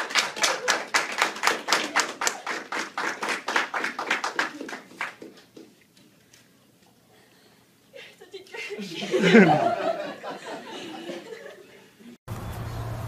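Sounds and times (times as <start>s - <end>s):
hands clapping rapidly: 0.0s - 5.7s.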